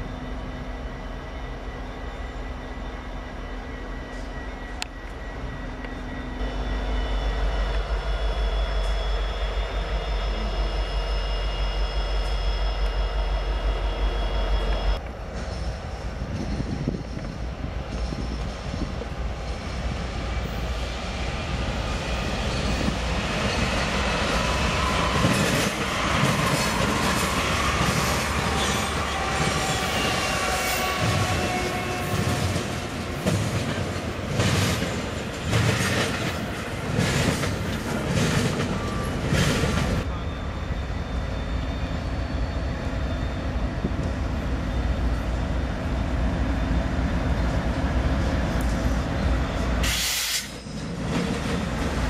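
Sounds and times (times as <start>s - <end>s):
diesel locomotives rumbling: 0.0s - 52.0s
train wheels clattering on rails: 22.4s - 40.1s, 49.6s - 52.0s.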